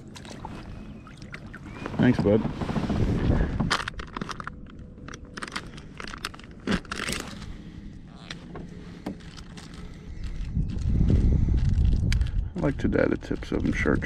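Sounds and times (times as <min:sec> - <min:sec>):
small crackles and clicks: 0:11.6 - 0:14.0.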